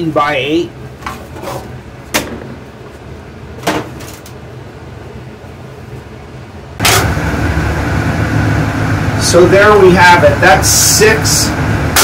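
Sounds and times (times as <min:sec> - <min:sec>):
loud steady room hum: 0:00.0 - 0:12.0
low hum: 0:04.2 - 0:12.0.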